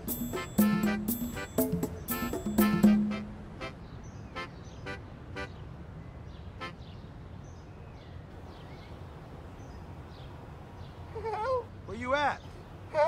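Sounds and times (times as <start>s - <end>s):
low traffic rumble: 0.0s - 13.0s.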